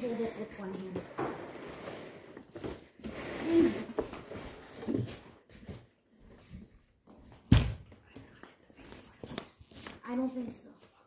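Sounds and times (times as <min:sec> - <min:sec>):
cardboard scraping and rustling: 0:00.8 - 0:05.9.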